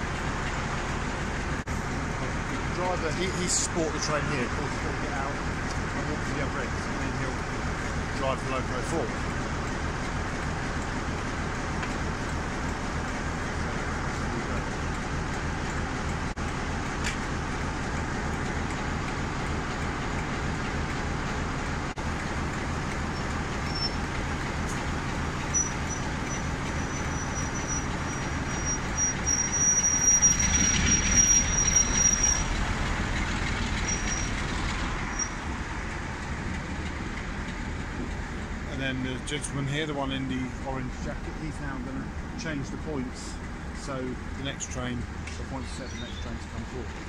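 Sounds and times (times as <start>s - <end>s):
diesel locomotive engine running: 0.0s - 47.0s
high squeal of running gear: 23.1s - 24.1s, 25.4s - 32.7s, 33.4s - 35.5s, 45.7s - 46.4s.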